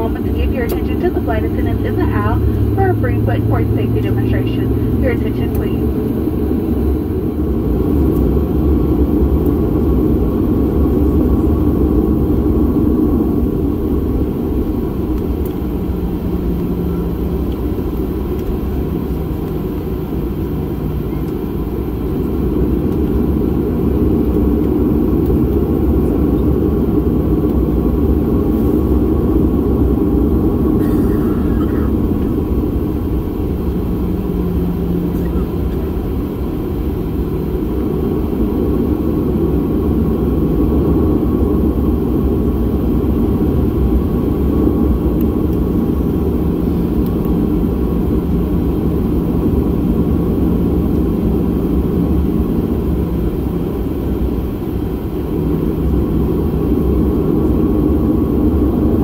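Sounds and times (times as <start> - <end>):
aircraft cabin rumble: 0.0 - 59.0.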